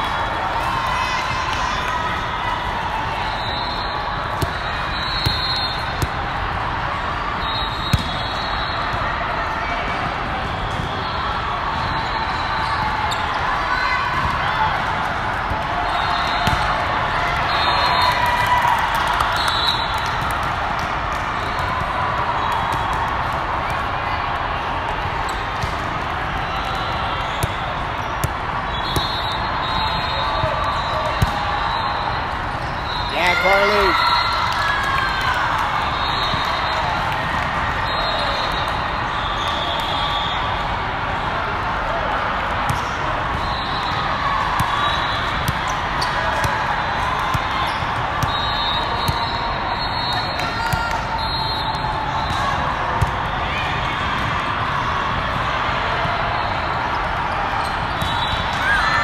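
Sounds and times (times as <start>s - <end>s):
echoing voices in sports hall: 0.0s - 59.0s
volleyball bouncing on floor: 16.4s - 16.8s.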